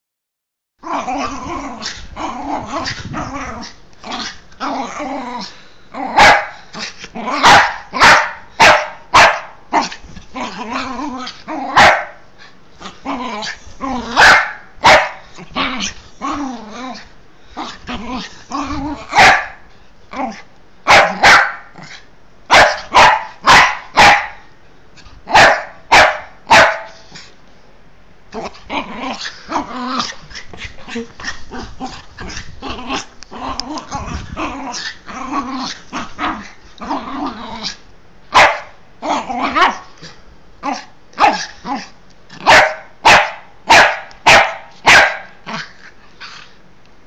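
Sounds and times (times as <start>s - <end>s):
dog growling: 0.8s - 7.6s, 9.7s - 11.9s, 12.8s - 14.4s, 15.3s - 19.4s, 28.3s - 37.8s, 39.0s - 42.5s
dog barking: 6.2s - 6.6s, 7.4s - 9.6s, 11.8s - 12.2s, 14.2s - 15.2s, 19.2s - 19.6s, 20.9s - 21.7s, 22.5s - 24.4s, 25.3s - 27.0s, 38.3s - 38.8s, 42.4s - 45.4s.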